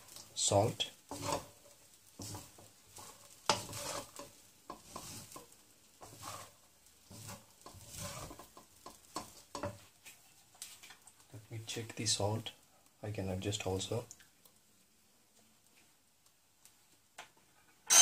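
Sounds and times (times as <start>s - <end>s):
wooden spatula scraping wok: 0.0s - 12.4s
rice sizzling: 0.0s - 18.0s.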